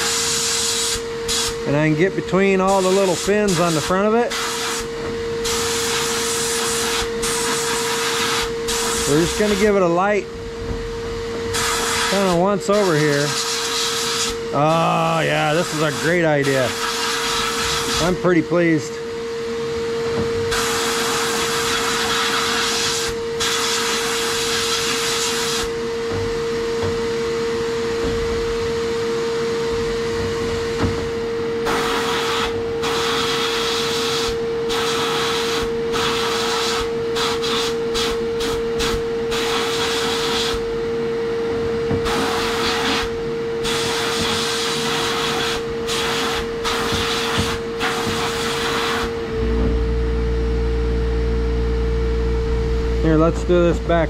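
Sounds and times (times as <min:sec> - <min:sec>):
motor hum: 0:00.0 - 0:54.0
sandblast gun hissing: 0:03.8 - 0:09.8, 0:11.5 - 0:14.4, 0:20.5 - 0:25.7, 0:31.6 - 0:40.6, 0:42.0 - 0:49.1.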